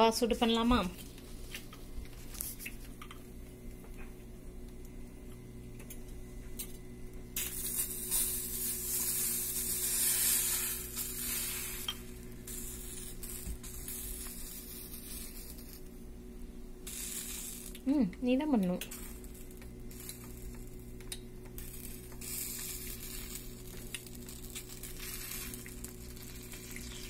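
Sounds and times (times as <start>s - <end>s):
egg mixture sizzling in a skillet: 7.4s - 15.9s, 16.8s - 17.9s, 18.9s - 27.0s.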